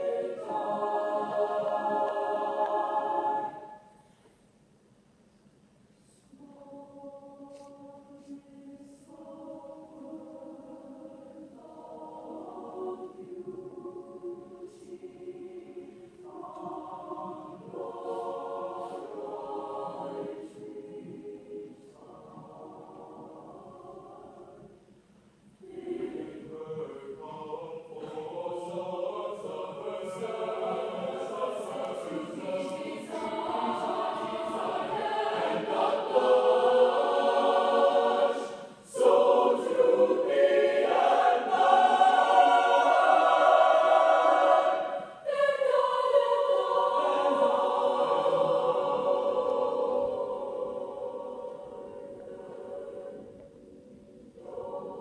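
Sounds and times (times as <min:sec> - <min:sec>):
choir singing in harmony: 0:00.0 - 0:04.1, 0:06.3 - 0:25.0, 0:25.6 - 0:55.0.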